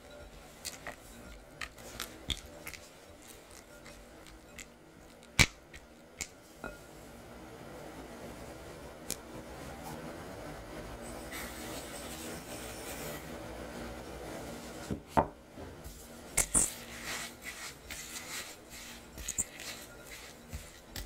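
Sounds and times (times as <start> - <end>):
spatula mixing in glass bowl: 0.0 - 5.9, 11.2 - 13.3, 16.3 - 21.0.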